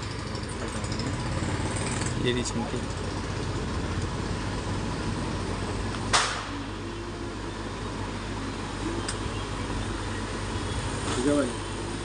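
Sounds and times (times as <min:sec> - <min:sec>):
mechanical hum with low buzz: 0:00.0 - 0:12.0.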